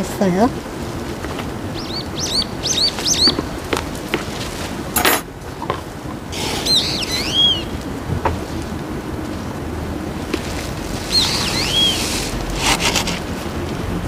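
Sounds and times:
outdoor hiss: 0.0s - 14.0s
small birds chirping: 1.2s - 4.4s, 5.5s - 8.1s, 10.9s - 12.4s.

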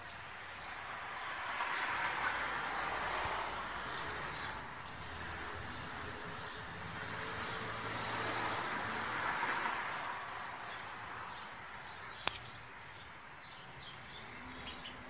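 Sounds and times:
car passing: 0.0s - 12.6s
sharp click: 12.2s - 12.5s.

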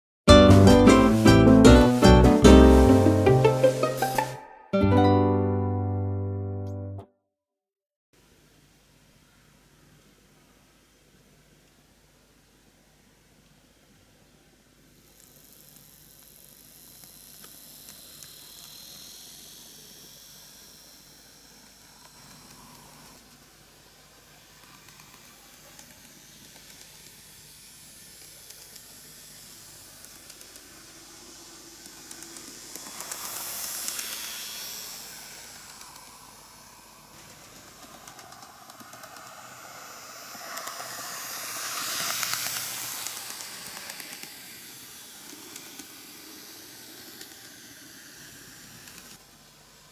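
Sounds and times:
model train motor hissing: 0.3s - 4.4s, 14.9s - 49.9s.

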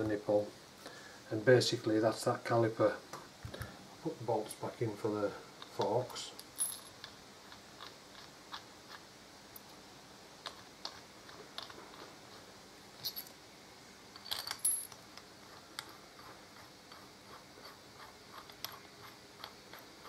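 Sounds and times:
metal bolts clinking: 14.2s - 15.0s.

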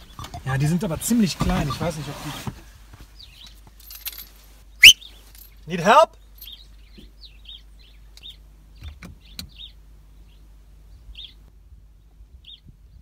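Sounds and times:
small bird chirping: 4.7s - 13.0s.

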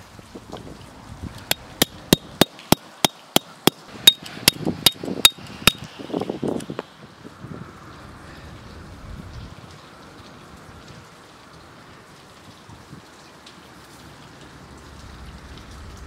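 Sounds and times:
hammer striking metal stake: 1.5s - 5.9s.

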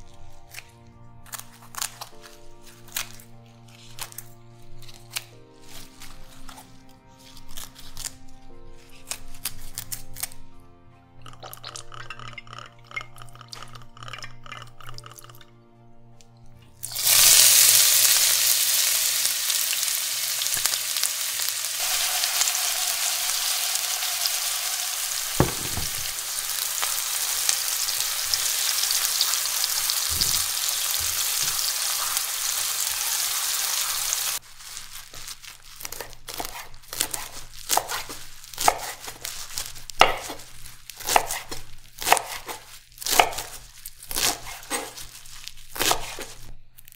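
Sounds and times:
soft music: 0.0s - 46.9s
food sizzling in a pan: 16.8s - 35.4s
dull stirring knocks: 25.3s - 26.1s
knife chopping on cutting board: 25.4s - 26.2s, 35.9s - 39.2s, 40.0s - 45.0s, 45.8s - 46.4s.

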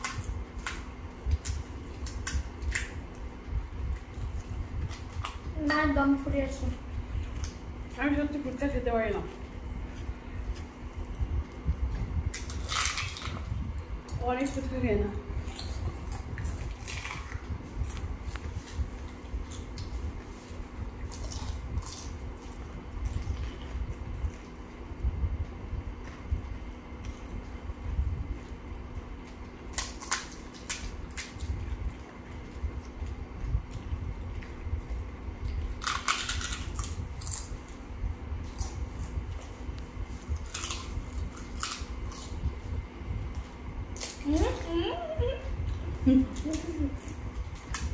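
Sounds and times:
steady low rumble: 0.0s - 47.9s
crisp shells cracking: 12.3s - 13.4s, 35.8s - 37.5s
crisp shells cracking and crunching: 12.3s - 13.5s, 15.4s - 18.5s, 20.5s - 23.7s, 29.2s - 33.3s, 35.5s - 37.8s, 40.4s - 42.4s.

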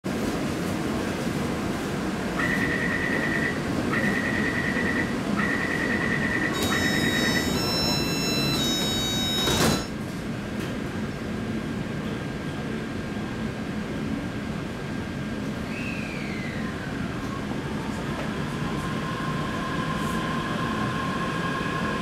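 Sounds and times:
train car low hum: 0.0s - 22.0s
whining tones of closing doors: 2.4s - 10.0s
rapid high-pitched beeping: 3.2s - 9.9s.

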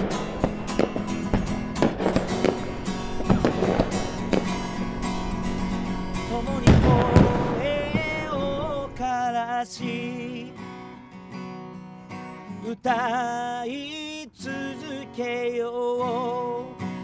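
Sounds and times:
fireworks crackling and popping: 0.0s - 9.1s
acoustic guitar chords: 0.0s - 17.0s.

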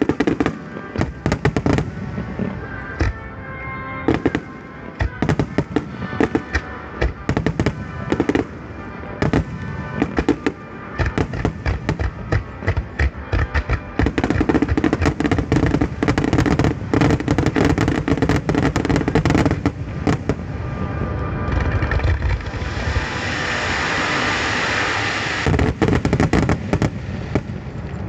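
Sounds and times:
dense firework crackling: 0.0s - 28.0s
firework shell bursts and booms: 21.7s - 27.6s.

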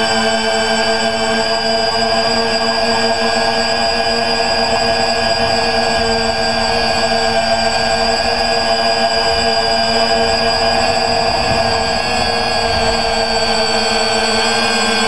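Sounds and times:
quadcopter motors whining: 0.0s - 15.0s
rushing noise: 3.1s - 15.0s.

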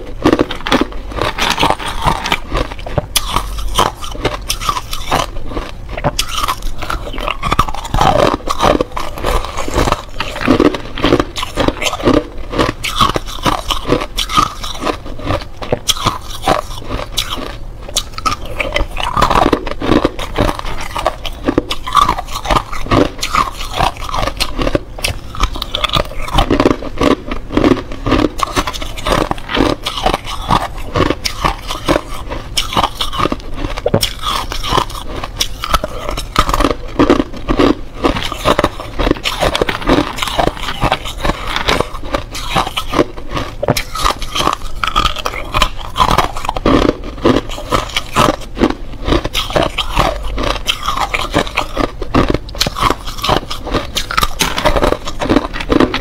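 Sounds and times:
ice cubes crunched between teeth: 0.0s - 56.0s.

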